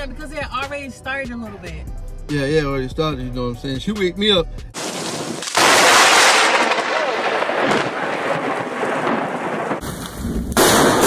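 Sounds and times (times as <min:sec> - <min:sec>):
heavy rain pouring: 0:04.8 - 0:09.8
thunder: 0:04.8 - 0:11.0.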